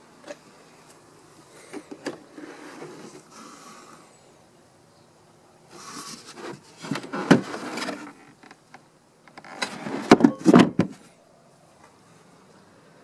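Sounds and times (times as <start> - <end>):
hands rubbing and scraping panels: 5.7 - 8.4.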